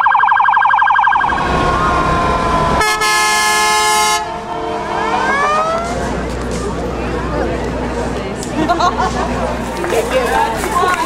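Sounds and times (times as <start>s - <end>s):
police siren yelping: 0.0s - 5.8s
sirens rising in pitch: 0.0s - 7.8s
fire engine air horn: 1.3s - 6.2s.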